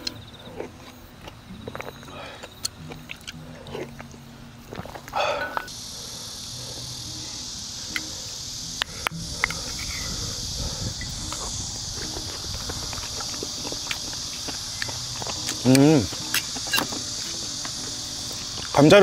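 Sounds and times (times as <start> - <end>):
chewing: 0.0 - 5.7, 9.3 - 18.8
steady high hiss: 0.0 - 19.0.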